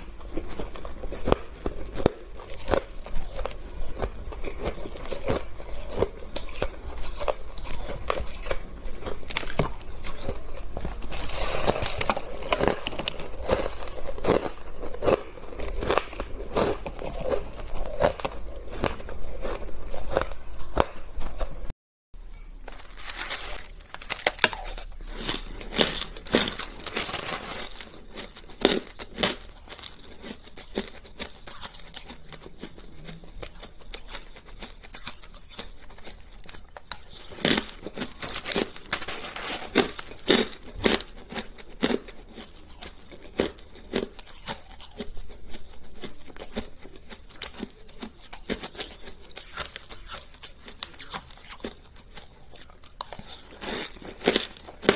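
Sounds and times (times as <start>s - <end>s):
shaved ice crunching: 22.6s - 32.3s.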